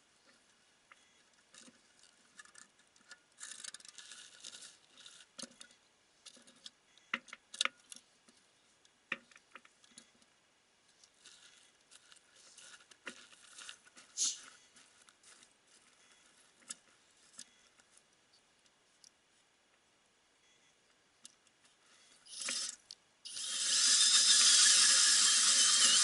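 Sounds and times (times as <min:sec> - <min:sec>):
scraping and crinkling: 0:00.2 - 0:07.0, 0:09.2 - 0:19.1.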